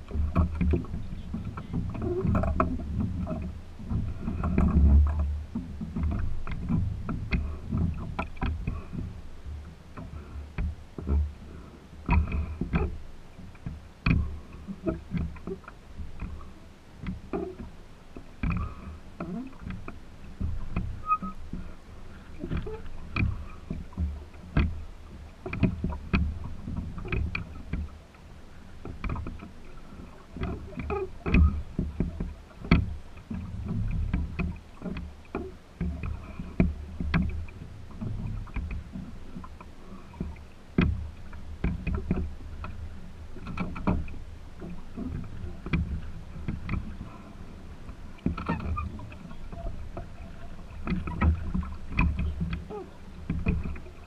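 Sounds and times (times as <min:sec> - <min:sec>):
water slapping on wooden hull: 0:00.0 - 0:54.0
wind rumble on microphone: 0:00.0 - 0:54.0
sharp clicks and knocks: 0:00.1 - 0:09.1, 0:28.8 - 0:29.5.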